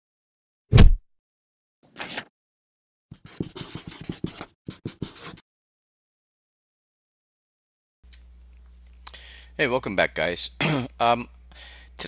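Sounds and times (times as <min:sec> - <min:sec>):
short swish: 0:00.7 - 0:01.0
pen scratching on paper: 0:03.1 - 0:05.4.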